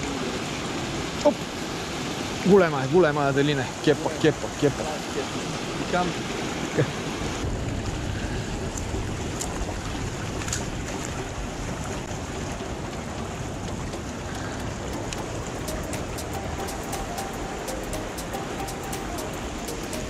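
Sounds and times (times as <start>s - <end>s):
water rushing over a weir: 0.0s - 20.0s
wind noise on microphone: 7.4s - 12.9s
faint ticks: 12.6s - 20.0s.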